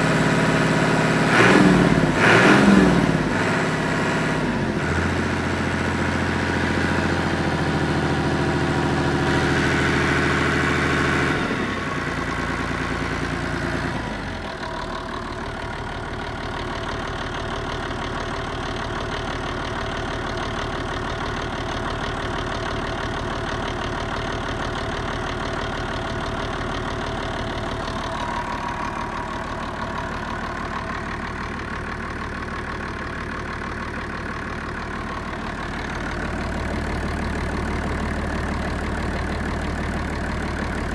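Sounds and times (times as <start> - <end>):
marine diesel engine running: 3.1 - 40.9.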